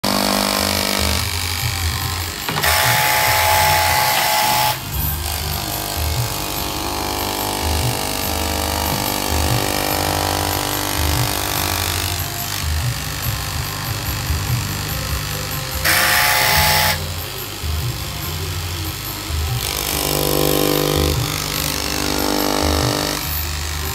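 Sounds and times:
cloth-cutting machine motor whine: 0.0s - 23.9s.

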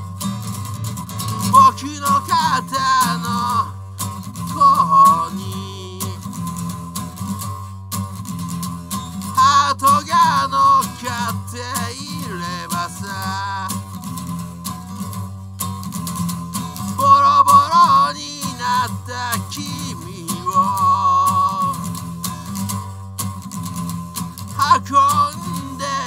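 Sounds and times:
acoustic guitar strumming: 0.0s - 26.0s
man singing: 1.4s - 6.4s, 9.4s - 14.0s, 16.9s - 22.0s, 24.5s - 26.0s.

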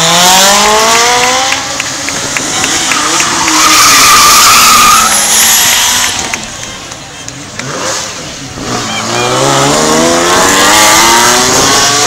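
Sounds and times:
high tire squeal: 2.4s - 6.2s.

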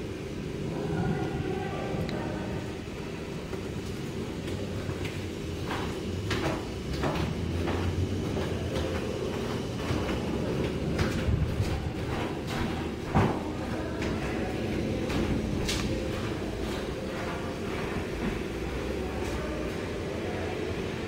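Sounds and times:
rolling thunder rumble: 10.4s - 12.2s.

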